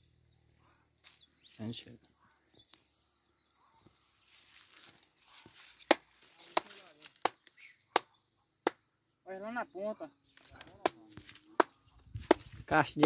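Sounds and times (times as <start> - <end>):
dry plants rustling: 1.0 - 1.5, 4.0 - 7.7
stalks snapping: 5.8 - 8.1.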